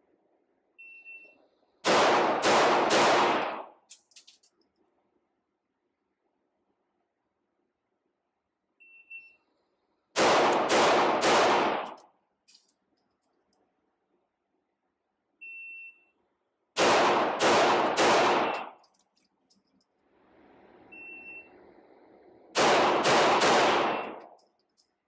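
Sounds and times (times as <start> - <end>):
shot timer beep: 0.8 - 1.4, 8.8 - 9.4, 15.4 - 16.2, 23.9 - 24.3
pistol shots echoing indoors: 1.8 - 3.7, 10.2 - 12.0, 16.8 - 18.8, 22.6 - 24.3.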